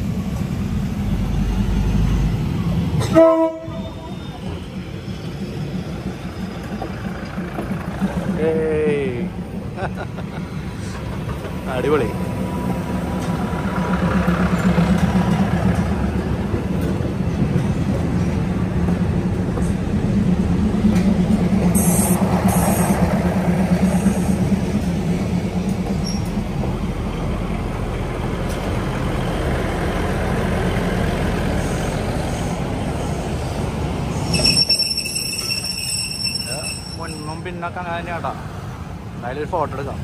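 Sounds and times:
diesel railcar engine drone: 0.0 - 40.0
train wheels on rails: 0.0 - 40.0.

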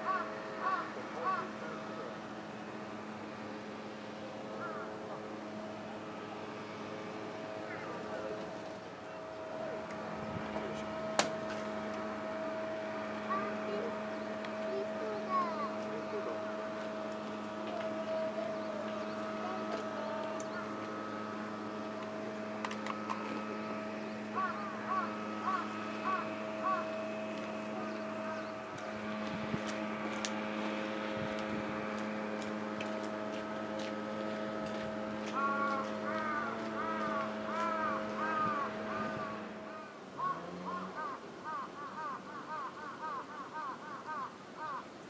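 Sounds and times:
crow cawing: 0.0 - 1.8, 4.6 - 5.2, 23.8 - 28.6, 35.2 - 45.0
steady mechanical hum: 0.0 - 45.0.

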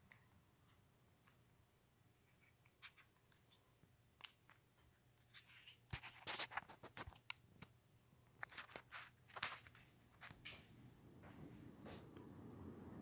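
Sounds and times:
small clicks and scratchy ticks: 2.2 - 10.6
ceiling fan humming: 7.4 - 13.0.

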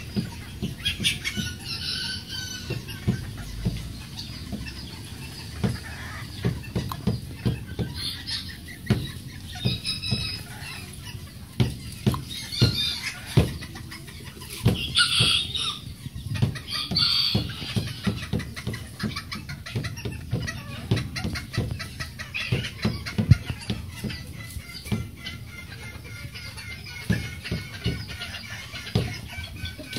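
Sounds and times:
hens clucking: 0.0 - 29.9.

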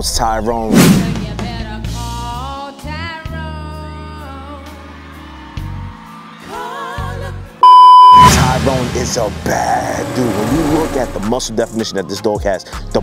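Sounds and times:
women singing: 1.2 - 5.0, 6.4 - 7.6
deep sustained bass notes: 8.2 - 11.6.

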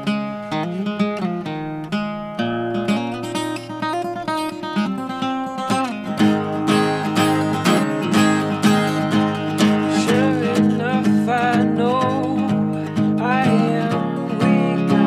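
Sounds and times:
acoustic guitar strumming: 0.0 - 15.0
person singing: 6.8 - 15.0.

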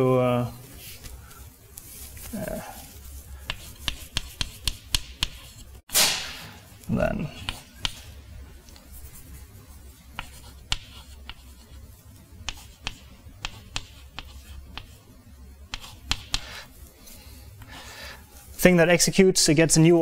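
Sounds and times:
chalk tapping and scratching: 0.8 - 5.8, 7.2 - 15.1, 15.7 - 18.6.

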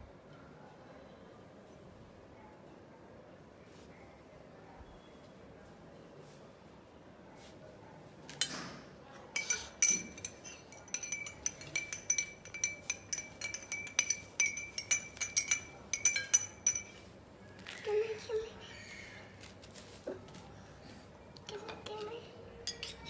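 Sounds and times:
spoon knock: 9.4 - 17.0
spoon clinking against glass: 9.4 - 17.1, 22.7 - 23.0.

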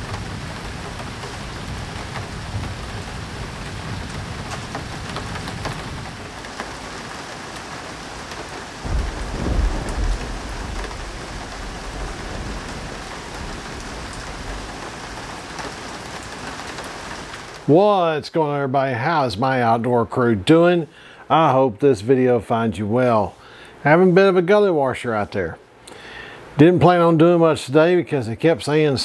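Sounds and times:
low thunder rumble: 0.0 - 6.2, 8.8 - 15.9
heavy rain pouring: 0.0 - 19.7.

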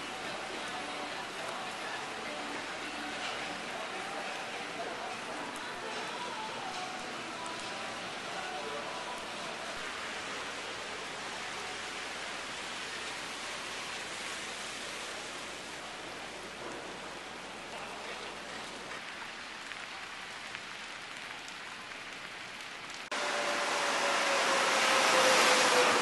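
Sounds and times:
heavy rain on water: 0.0 - 26.0
metro train pulling in: 23.2 - 26.0.

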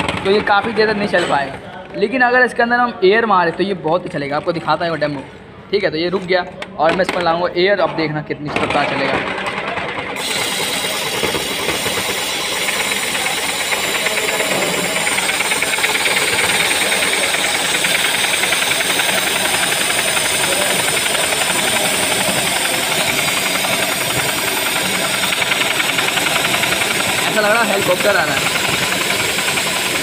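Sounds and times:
spinner whirring: 9.2 - 30.0
compressed air hissing: 10.2 - 30.0.

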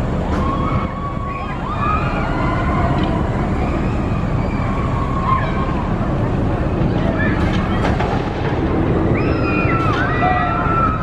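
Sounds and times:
roller coaster rumbling on track: 0.0 - 11.0
riders screaming: 9.1 - 11.0.

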